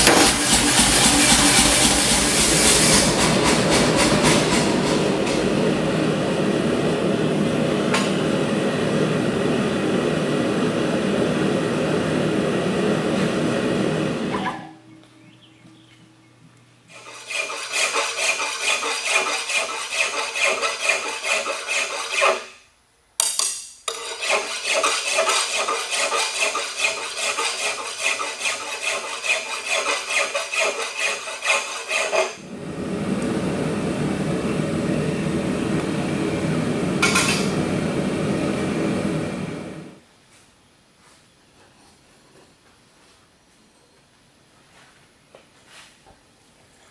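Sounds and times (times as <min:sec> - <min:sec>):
gas forge roaring: 0:00.0 - 0:14.7, 0:32.3 - 0:40.0
hand file rasping on steel: 0:16.9 - 0:22.5, 0:23.9 - 0:32.4.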